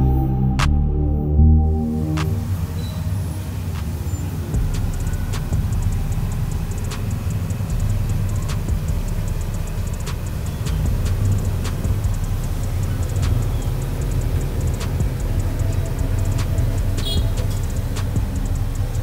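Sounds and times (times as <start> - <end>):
traffic rumble: 0.0 - 19.0
motorbikes passing: 2.2 - 19.0
sharp clicks: 5.1 - 7.7.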